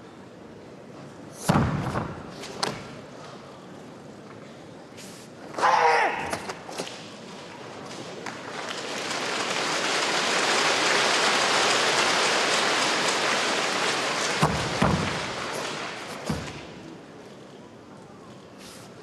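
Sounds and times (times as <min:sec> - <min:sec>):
audience applauding: 0:08.2 - 0:16.1.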